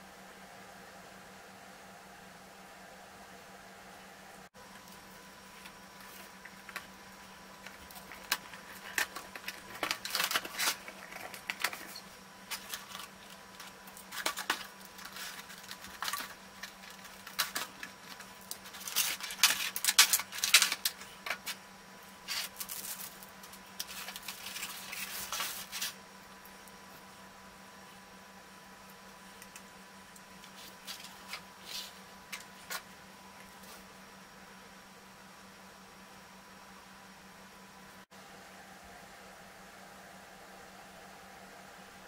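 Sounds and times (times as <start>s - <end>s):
plastic crinkling and clicking: 7.6s - 21.6s.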